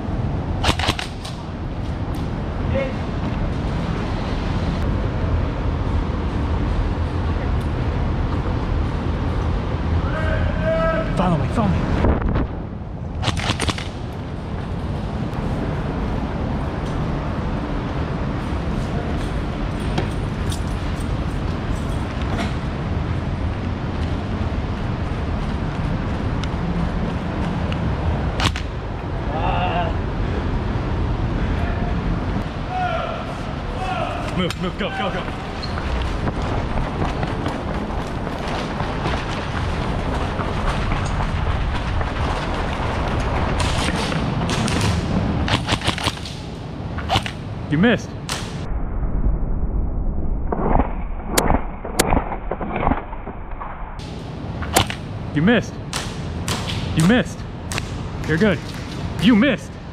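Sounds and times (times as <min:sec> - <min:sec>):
low rumbling noise: 0:00.0 - 0:59.9
airsoft gunfire: 0:00.6 - 0:01.2
low rumbling: 0:46.4 - 0:59.9.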